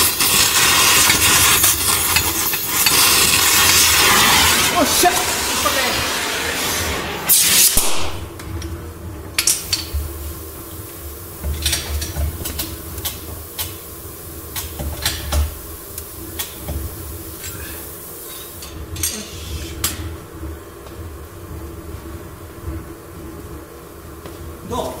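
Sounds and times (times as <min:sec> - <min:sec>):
torch whoosh: 0:00.0 - 0:08.6
gas torch hissing: 0:00.0 - 0:20.2.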